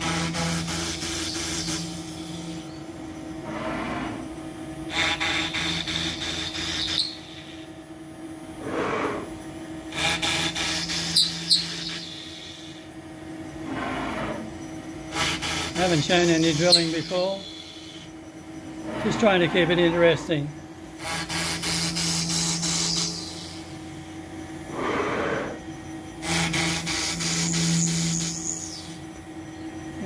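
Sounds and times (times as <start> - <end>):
machine moving whine: 0.0 - 30.0
router spindle running: 9.9 - 24.1, 26.2 - 29.1.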